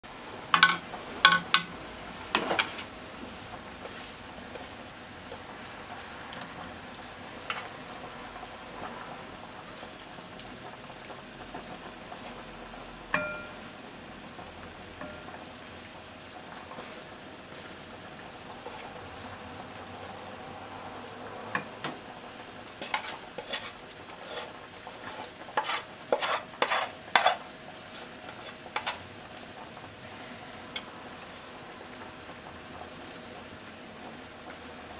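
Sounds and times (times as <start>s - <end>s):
pasta sizzling in frying pan: 0.0s - 34.9s
chopsticks clicking on pan and plate: 0.5s - 2.7s, 25.6s - 27.4s, 28.3s - 29.0s.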